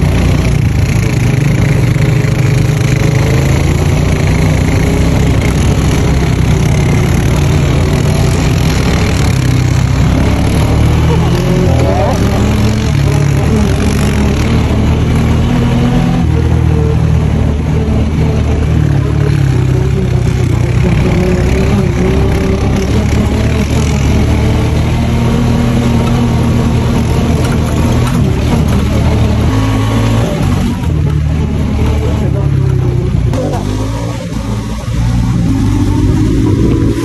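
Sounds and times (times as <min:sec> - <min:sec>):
buggy engine revving: 0:00.0 - 0:37.0.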